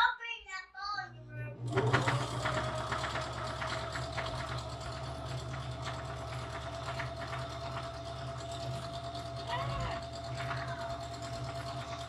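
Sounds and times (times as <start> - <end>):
sewing machine running: 1.2 - 12.0.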